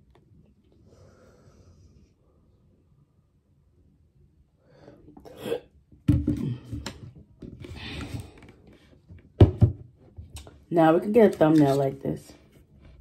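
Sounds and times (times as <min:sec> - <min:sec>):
plastic jug knocks and clicks: 0:06.0 - 0:07.6, 0:09.2 - 0:10.3.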